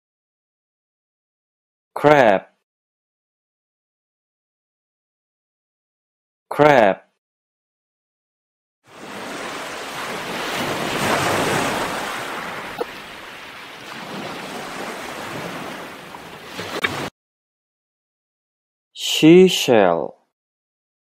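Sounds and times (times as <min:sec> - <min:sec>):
surf washing on shore: 0:08.9 - 0:17.1
wind: 0:08.9 - 0:17.1.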